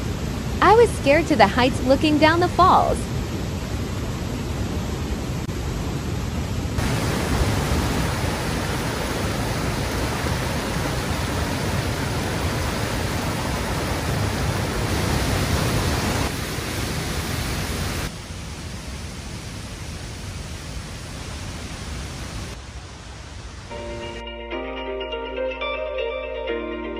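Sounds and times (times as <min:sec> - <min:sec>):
water rushing over rocks: 0:00.0 - 0:19.5.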